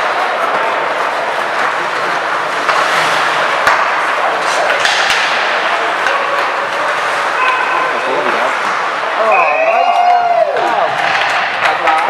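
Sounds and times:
sticks hitting puck: 0:00.0 - 0:08.8, 0:10.6 - 0:12.0
skate blades scraping ice: 0:00.0 - 0:09.2
players shouting: 0:06.0 - 0:11.4.

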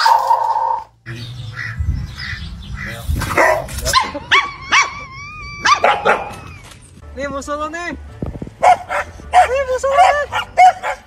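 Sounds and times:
dog yipping: 0:03.3 - 0:06.8, 0:08.6 - 0:11.0.

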